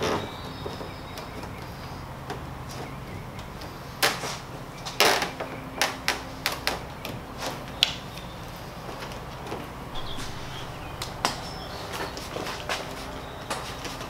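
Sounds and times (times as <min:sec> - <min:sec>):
scraping rustle: 0:10.0 - 0:12.9.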